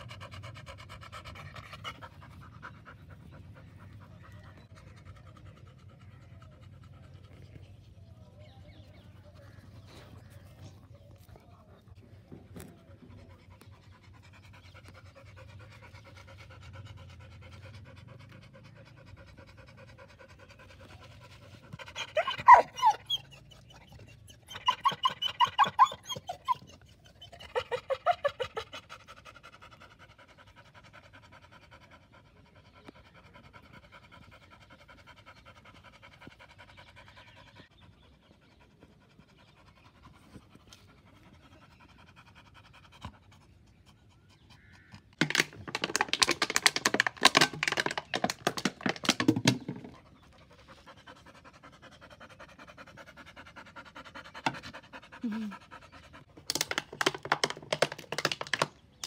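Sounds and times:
dogs panting: 0.0s - 59.0s
dogs vocalizing: 0.0s - 59.0s.

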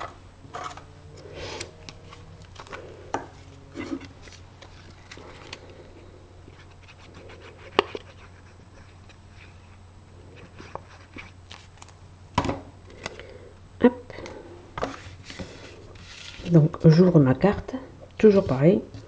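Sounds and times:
paper rustling: 0.5s - 2.9s, 3.7s - 5.8s, 10.4s - 12.0s, 14.8s - 16.6s.

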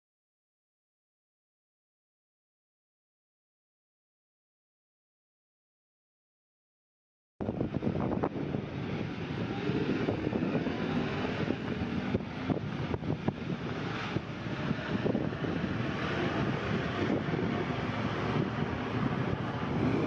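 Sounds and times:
wind buffeting microphone: 7.4s - 20.0s
vehicle engine running: 7.6s - 20.0s.

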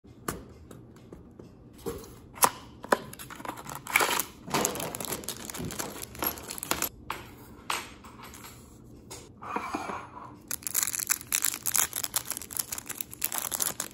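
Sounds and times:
plastic bag crinkling: 3.4s - 6.9s, 10.5s - 13.9s.

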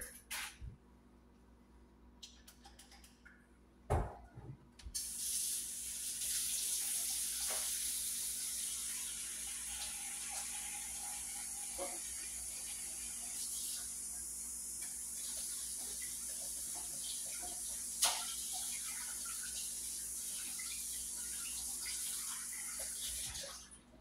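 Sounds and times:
water running into sink: 5.0s - 23.7s.

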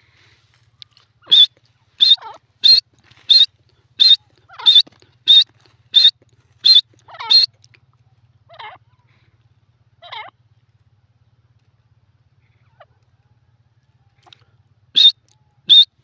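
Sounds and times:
bird calling: 0.7s - 7.6s, 14.1s - 16.0s.

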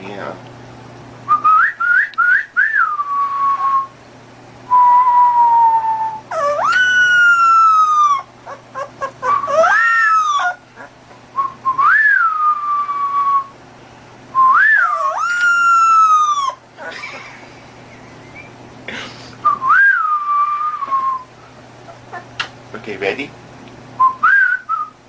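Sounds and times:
puppy howling: 5.7s - 11.0s, 14.6s - 17.2s, 21.8s - 22.4s.

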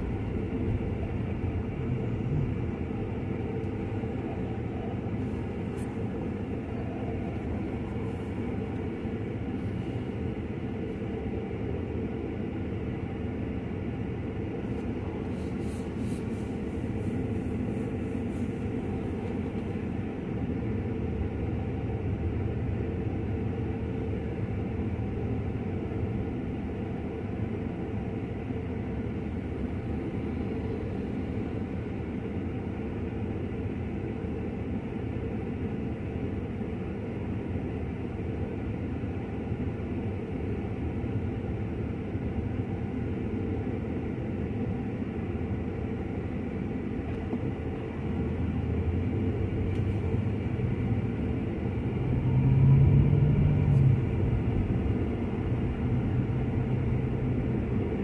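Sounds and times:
road noise inside car: 0.0s - 58.0s.

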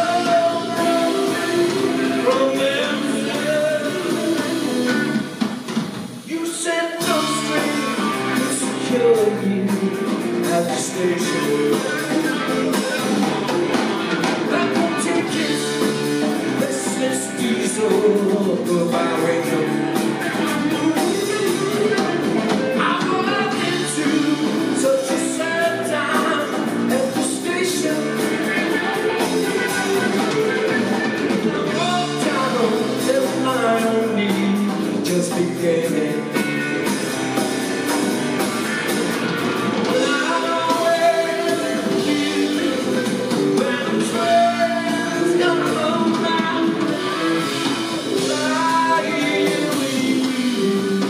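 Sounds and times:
live rock band playing: 0.0s - 51.0s.

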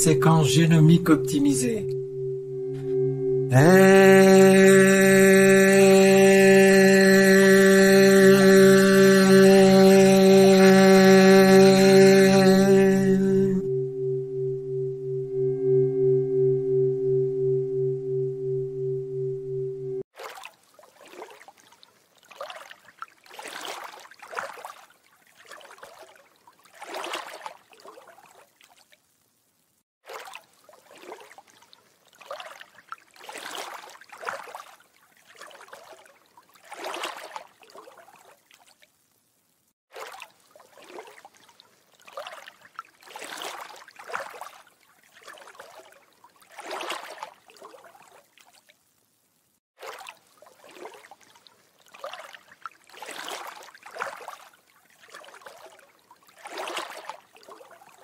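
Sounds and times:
pulsing singing bowl tone: 0.0s - 20.0s
water lapping and trickling: 20.1s - 58.0s.

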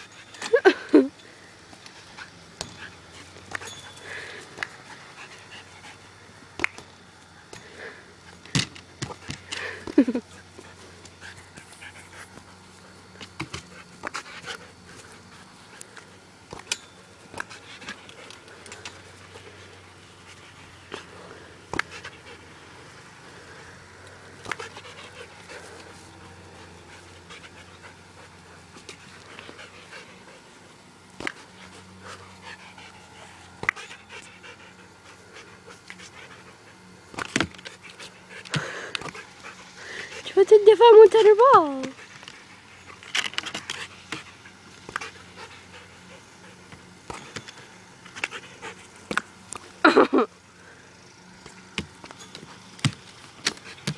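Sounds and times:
dog panting: 1.9s - 6.3s, 9.2s - 16.2s, 17.4s - 30.7s, 31.3s - 47.3s, 48.0s - 49.0s.

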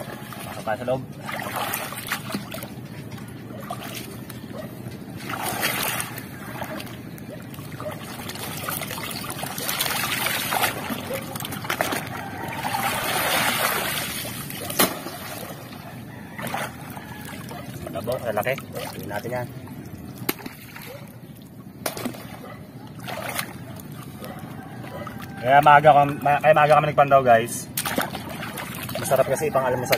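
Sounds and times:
seawater splashing and sloshing: 0.0s - 26.5s, 27.6s - 29.9s.

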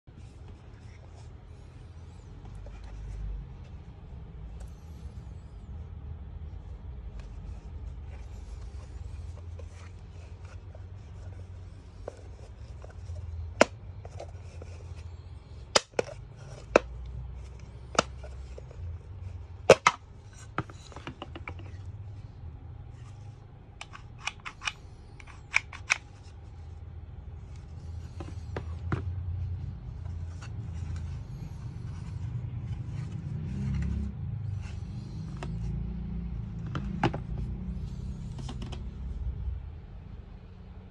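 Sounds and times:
steady low hum: 0.0s - 40.9s
plastic parts clicking and tapping: 15.6s - 18.8s, 19.6s - 21.9s, 23.7s - 26.3s.

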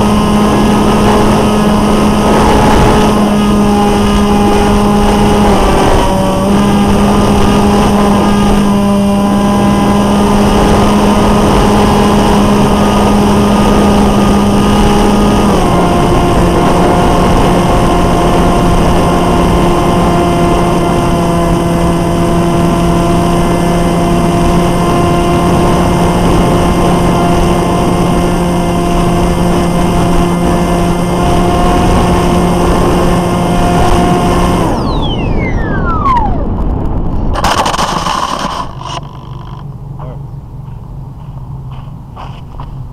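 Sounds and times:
electric motor and propeller drone: 0.0s - 40.2s
wind rushing over microphone: 0.0s - 42.9s
plane scraping on gravel: 37.2s - 39.6s.

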